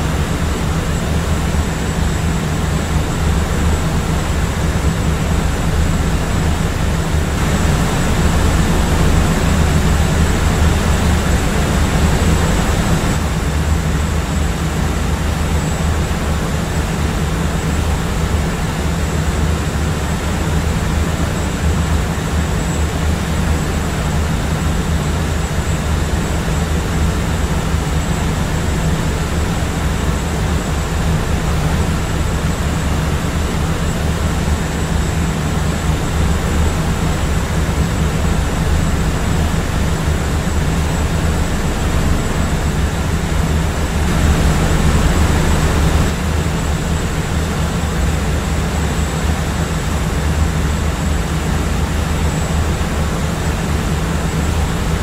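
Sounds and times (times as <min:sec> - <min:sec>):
airplane cabin drone: 0:00.0 - 0:55.0
thin high whine: 0:31.3 - 0:48.1.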